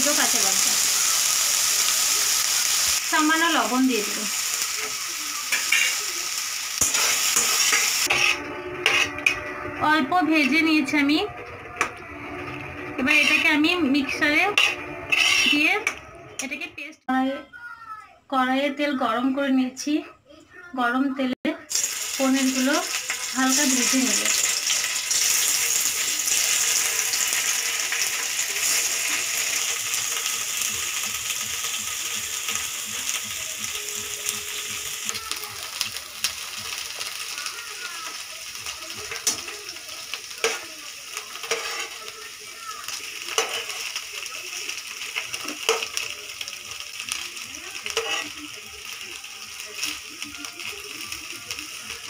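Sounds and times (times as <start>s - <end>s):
cheese sizzling in hot oil: 0.0s - 11.0s, 12.4s - 15.9s, 21.6s - 52.0s.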